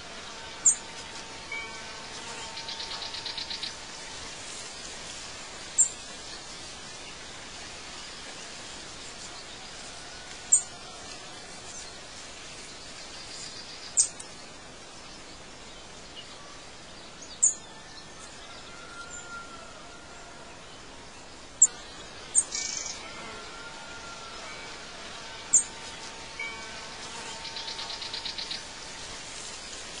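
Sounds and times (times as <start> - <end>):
background hiss: 0.0 - 30.0
bird trill: 21.6 - 23.0, 25.5 - 25.7.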